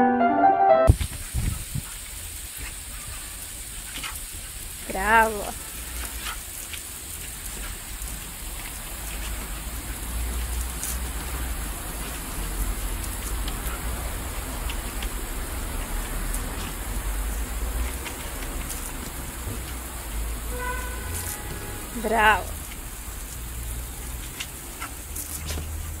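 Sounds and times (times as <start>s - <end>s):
hose water splashing on patio: 0.9s - 26.0s.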